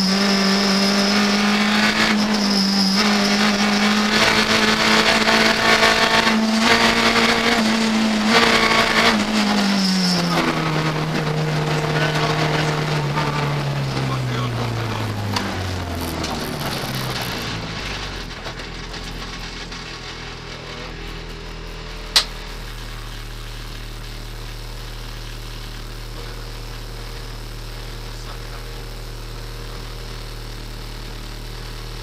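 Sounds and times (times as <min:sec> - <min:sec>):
car engine idling: 0:00.0 - 0:32.0
sharp click: 0:22.2 - 0:22.4.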